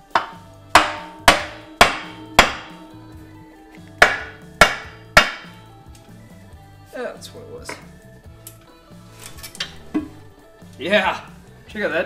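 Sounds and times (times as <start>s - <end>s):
hammer striking cast iron: 0.0s - 5.7s.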